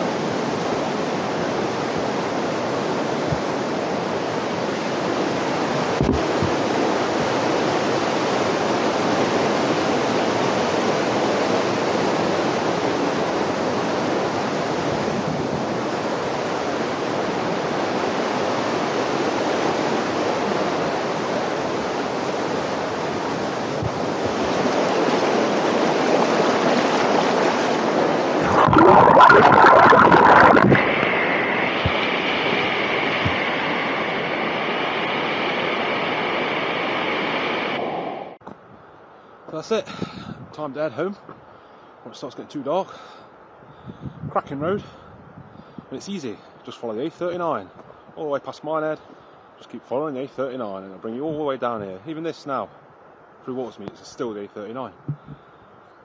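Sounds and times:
river rushing over rocks: 0.2 - 14.8, 15.6 - 35.0.

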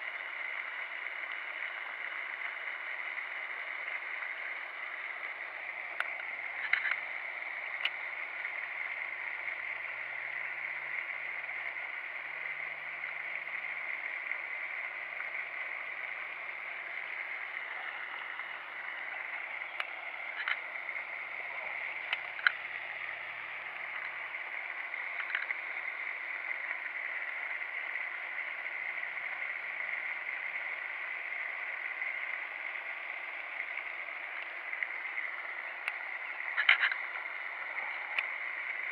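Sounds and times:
fountain spray splashing: 0.0 - 38.9
sharp clicks: 5.9 - 8.0, 19.3 - 21.0, 21.9 - 22.8, 24.9 - 25.9, 34.4 - 37.2.

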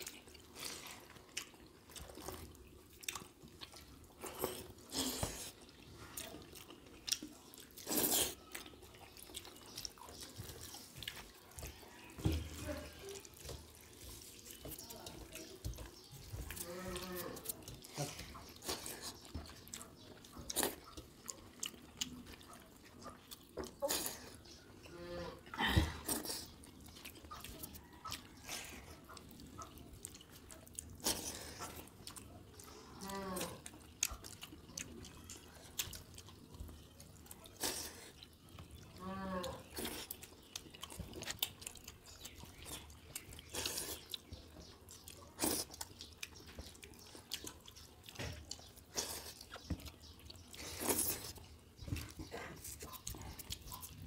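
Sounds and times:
hands squishing wet rice: 0.0 - 24.7, 39.6 - 54.0
wet smacking and chewing: 0.0 - 54.0.

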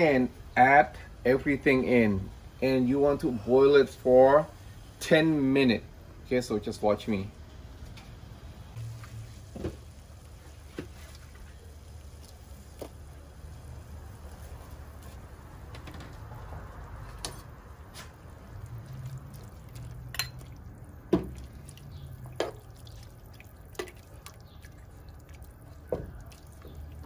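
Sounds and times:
water boiling and bubbling: 8.3 - 27.0.

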